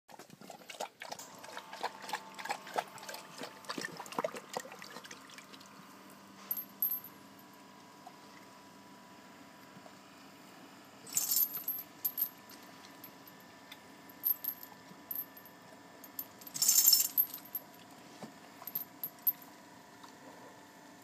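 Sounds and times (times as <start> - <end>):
dog collar chain jingling: 16.5 - 17.5.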